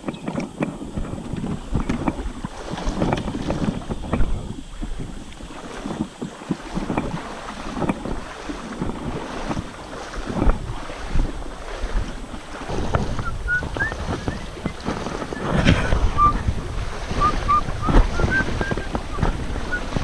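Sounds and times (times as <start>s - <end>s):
paddle splashes and knocks: 0.0s - 20.0s
wind rumbling on microphone: 0.0s - 20.0s.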